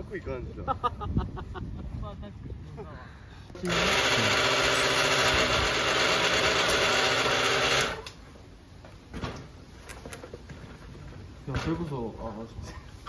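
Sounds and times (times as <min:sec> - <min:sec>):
electric air pump humming: 0:03.6 - 0:08.2.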